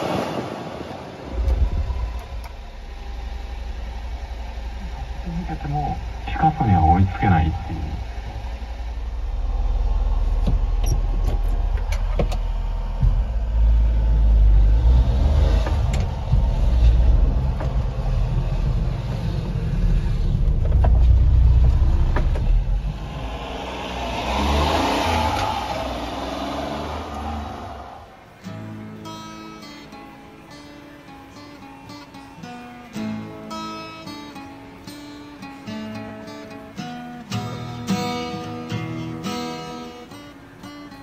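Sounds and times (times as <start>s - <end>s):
road and wind noise: 0.0s - 41.0s
small truck engine running: 1.2s - 28.4s.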